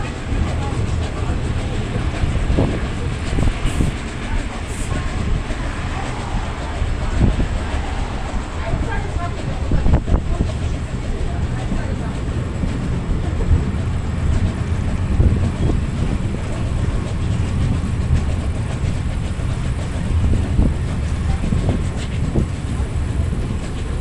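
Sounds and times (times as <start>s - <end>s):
train wheels rumbling on rails: 0.0s - 24.0s
wind noise: 0.0s - 24.0s.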